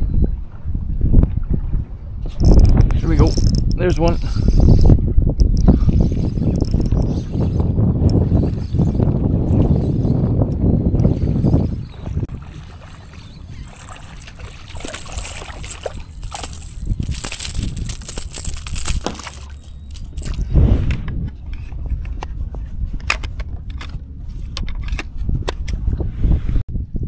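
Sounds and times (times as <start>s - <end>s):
water sloshing and splashing: 11.0s - 20.5s.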